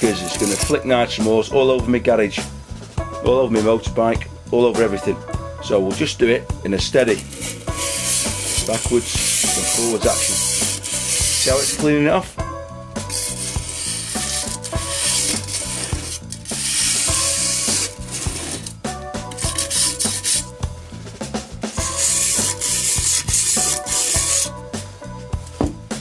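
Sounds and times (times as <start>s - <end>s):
wire brush scraping metal: 0.0s - 0.9s, 6.9s - 12.4s, 13.0s - 24.6s
background music: 0.0s - 26.0s.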